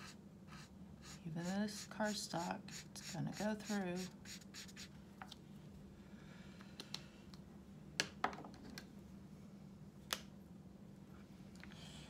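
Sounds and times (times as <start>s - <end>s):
pens set down on wooden table: 8.0s - 8.8s.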